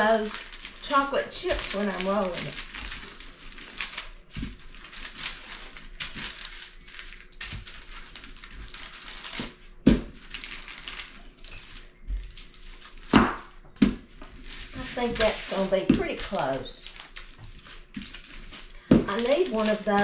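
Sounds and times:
paper rustling and crinkling: 0.0s - 20.0s
rolling pin over parchment paper: 0.0s - 20.0s.

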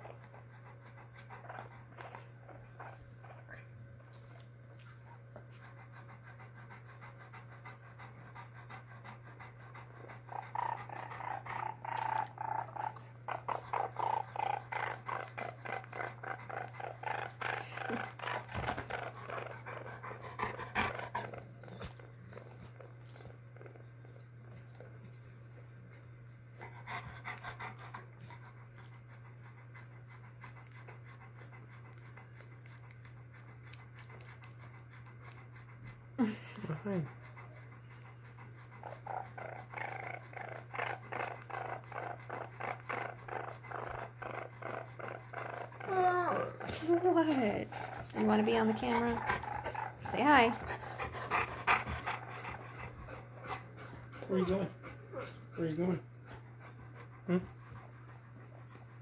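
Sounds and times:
baby raccoon cooing and purring: 10.3s - 20.0s, 38.7s - 50.6s.

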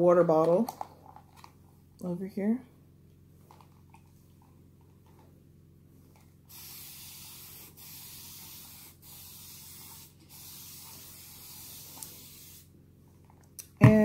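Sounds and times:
spray bottle hissing: 6.5s - 12.7s.

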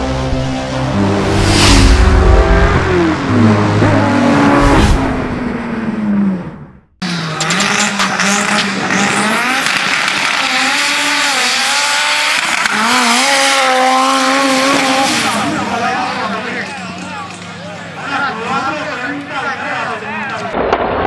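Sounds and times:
intro sound: 0.0s - 5.6s
car engine revving: 0.0s - 17.7s.

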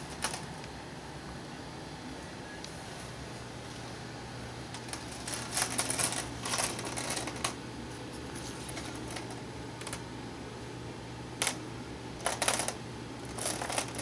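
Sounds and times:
steady low hum: 0.0s - 14.0s
book pages flicking and rustling: 4.8s - 9.4s.

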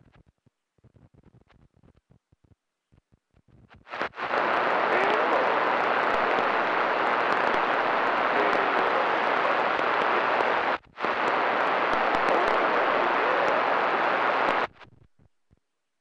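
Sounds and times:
radio crackles: 3.8s - 15.2s
radio static rushing: 3.9s - 14.8s.

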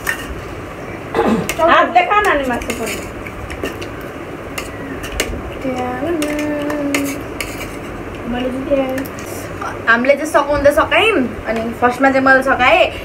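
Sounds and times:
spoons clinking on steel plates: 4.6s - 7.9s.

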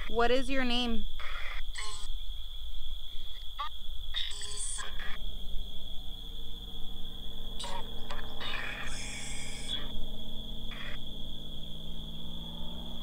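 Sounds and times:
high insect trill: 0.0s - 13.0s
radio static bursts: 1.2s - 2.2s, 3.6s - 5.2s, 7.6s - 9.8s.

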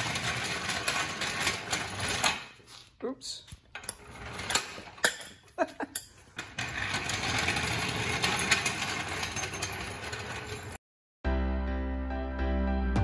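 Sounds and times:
floor jack clanking: 0.0s - 2.6s, 3.8s - 10.8s
jack wheels rattling on concrete: 0.0s - 3.0s, 3.6s - 10.8s.

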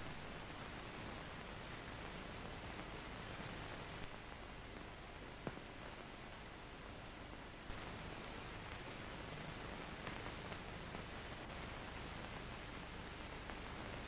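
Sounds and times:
old film soundtrack hiss: 0.0s - 14.0s
high-pitched whine: 4.0s - 7.9s
faint click: 5.4s - 6.1s.

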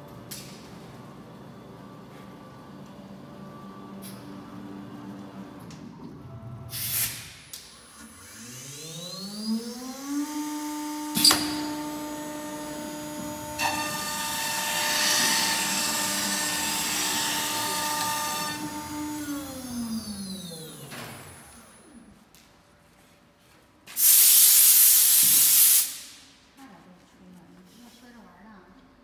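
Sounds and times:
router spindle whine: 7.9s - 21.6s
router bit cutting: 8.3s - 19.9s
short hiss: 23.9s - 26.3s.

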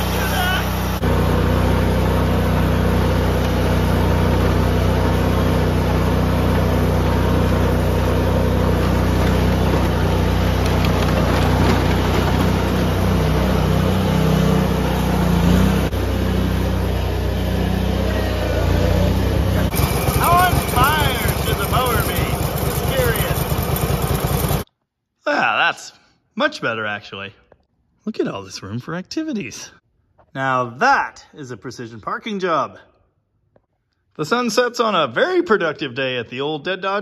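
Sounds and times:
riding lawn mower engine running: 0.0s - 24.6s.

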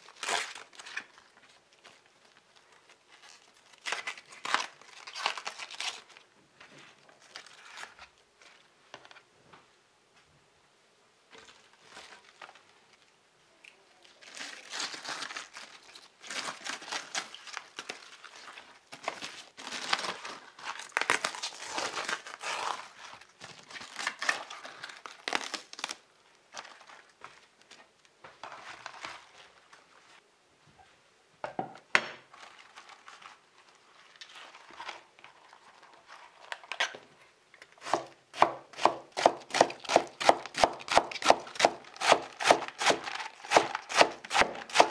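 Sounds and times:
cabbage leaves crinkling and tearing: 0.0s - 6.3s, 6.9s - 8.6s, 11.4s - 27.5s, 32.3s - 36.8s, 39.2s - 44.9s.

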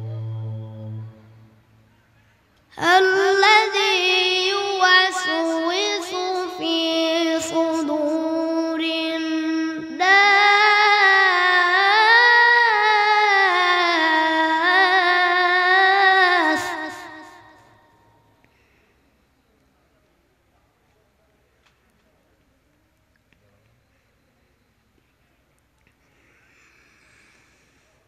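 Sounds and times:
boy reciting melodically: 0.0s - 1.4s, 2.7s - 18.0s.

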